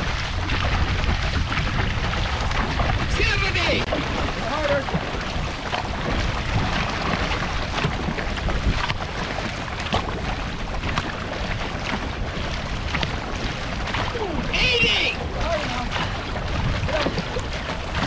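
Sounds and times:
paddles splashing water: 0.0s - 18.0s
rush of water: 0.0s - 18.0s
wind buffeting microphone: 0.0s - 18.0s.

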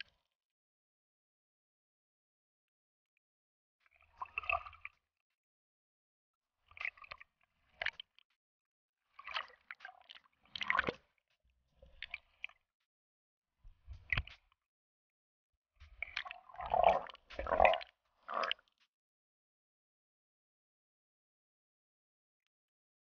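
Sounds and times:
water sloshing and splashing: 3.9s - 5.0s, 6.6s - 8.2s, 9.0s - 12.6s, 13.7s - 14.5s, 15.8s - 18.8s.

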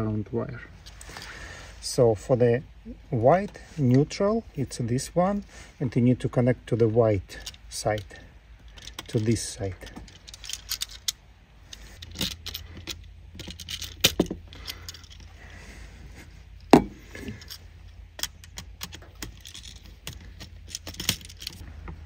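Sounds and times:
steady low hum: 0.0s - 22.0s
metallic clicks and rattles: 7.3s - 15.3s, 16.6s - 22.0s
sharp knocks: 16.7s - 17.0s.

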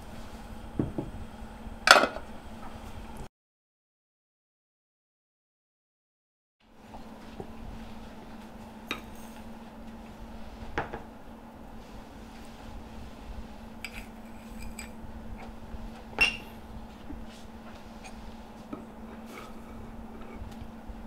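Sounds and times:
steady low hum: 0.0s - 3.3s, 6.6s - 21.0s
spoon and dishes clinking: 8.9s - 9.4s, 13.8s - 15.0s, 16.2s - 16.5s.

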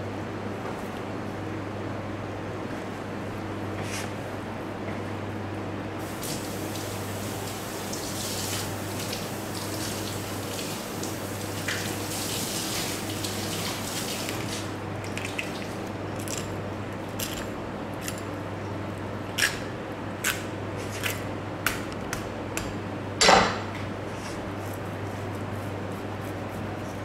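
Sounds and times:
steady low hum: 14.7s - 27.0s.

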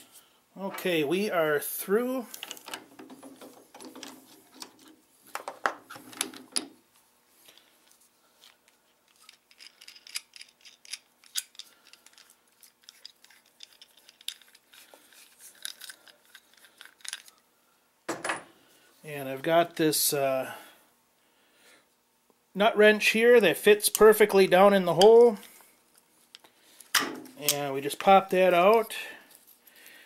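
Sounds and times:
metallic clicks and scrapes: 8.4s - 17.4s.

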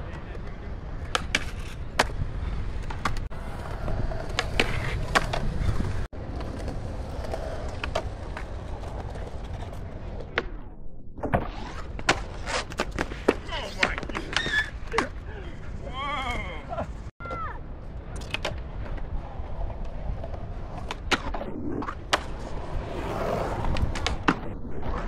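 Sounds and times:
skateboard clacks: 0.0s - 10.6s, 18.1s - 25.0s
skateboards rolling on concrete: 0.0s - 25.0s
skateboard sliding on ledge: 0.9s - 15.8s, 18.3s - 25.0s.

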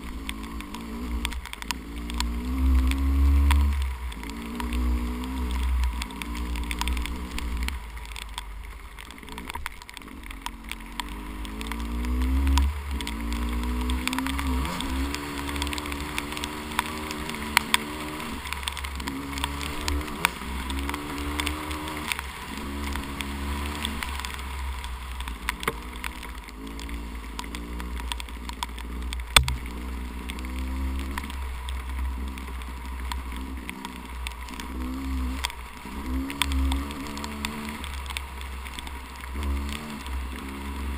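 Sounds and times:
dirt bike engine revving: 0.0s - 7.7s, 9.2s - 24.4s, 33.4s - 38.1s, 39.3s - 40.9s
sharp ticks: 0.0s - 40.9s.

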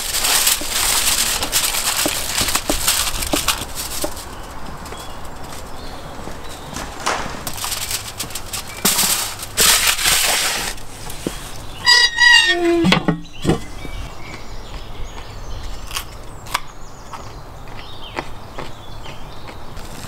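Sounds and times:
metal tray scraping into oven: 6.8s - 10.8s, 11.4s - 13.0s.

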